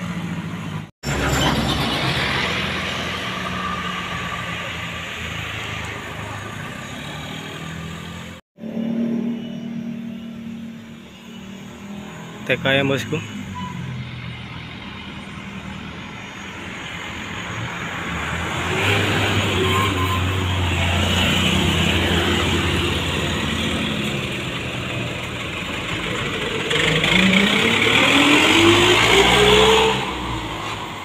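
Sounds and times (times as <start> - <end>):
diesel bus engine revving: 11.6 - 31.0.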